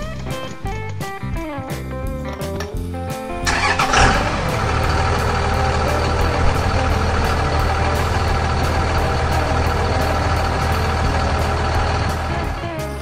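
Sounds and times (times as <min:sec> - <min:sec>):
truck engine running: 0:03.3 - 0:13.0.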